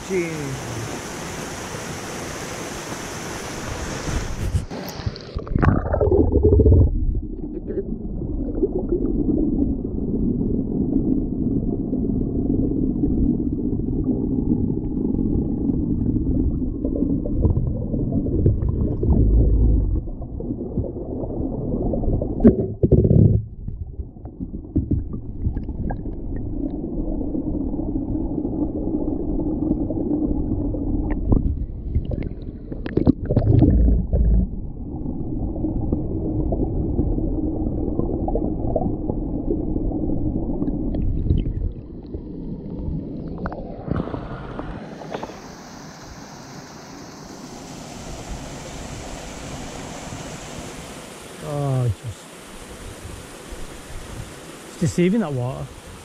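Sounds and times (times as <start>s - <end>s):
muffled underwater waterfall rumble: 0.0s - 46.2s.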